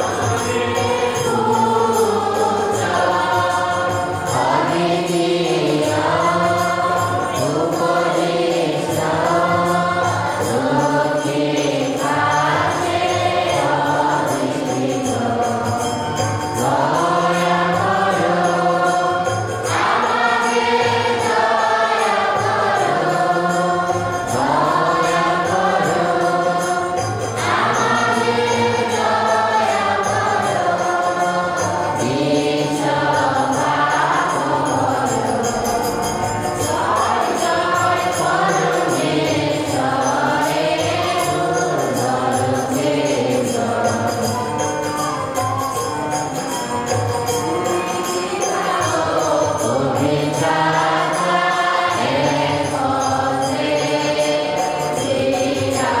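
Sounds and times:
choir singing a hymn: 0.0s - 56.0s.

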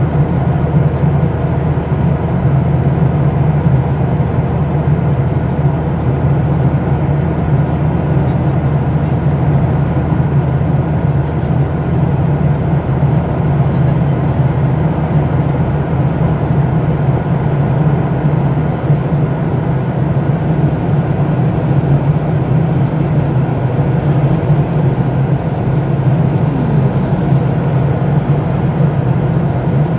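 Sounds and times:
airplane engine hum: 0.0s - 29.9s.

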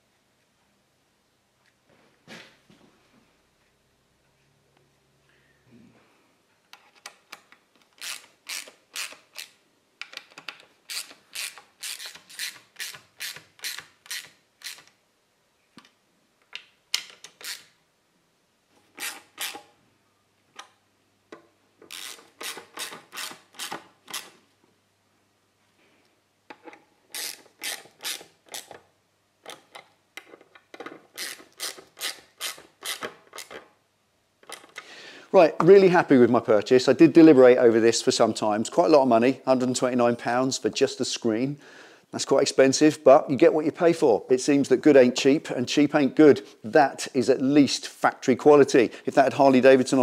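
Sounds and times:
socket ratchet clicking: 6.9s - 15.0s, 17.0s - 17.7s, 19.0s - 19.7s, 21.9s - 24.3s, 27.1s - 28.8s, 31.2s - 33.6s.

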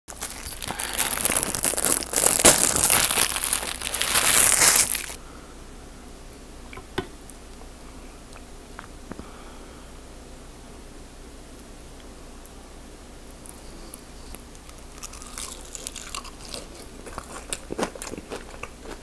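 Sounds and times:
wrapper crumpling: 0.1s - 5.2s.

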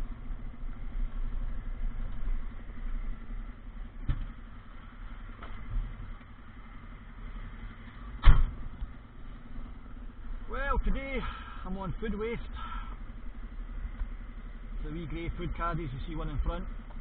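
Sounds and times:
truck engine running: 0.0s - 17.0s
thump: 4.0s - 4.4s, 8.2s - 8.6s.

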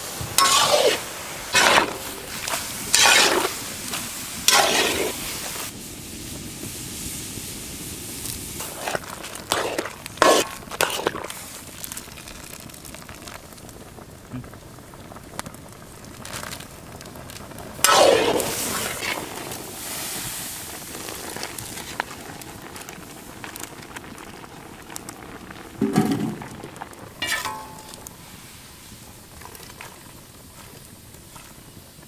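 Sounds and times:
metal ladle clinking on wok: 0.4s - 1.0s, 27.2s - 28.1s
liquid splashing: 0.4s - 5.4s.

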